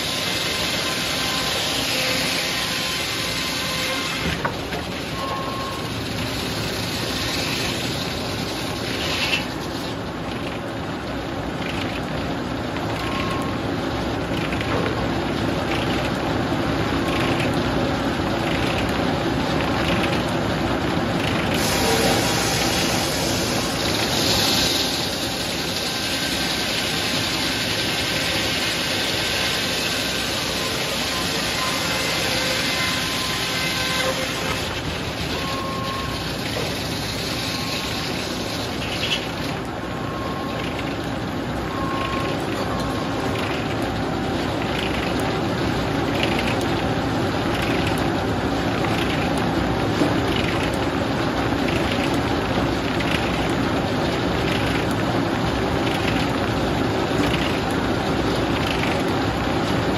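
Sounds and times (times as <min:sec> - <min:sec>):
circular saw cutting log: 0:00.0 - 0:10.4, 0:21.4 - 0:39.7.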